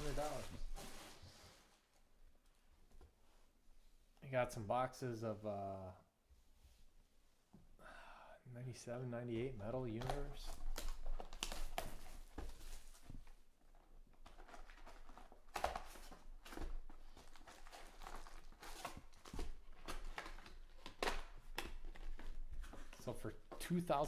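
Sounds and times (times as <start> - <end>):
cardboard tearing: 0.0 - 1.1, 14.2 - 22.8
wrapper crinkling: 0.0 - 1.2, 14.2 - 23.0.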